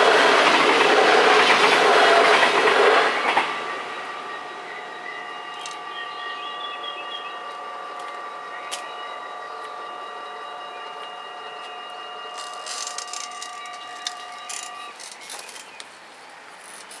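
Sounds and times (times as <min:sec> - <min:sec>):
level crossing bells ringing: 0:04.5 - 0:15.0
irregular clicking and rattling: 0:12.4 - 0:15.9.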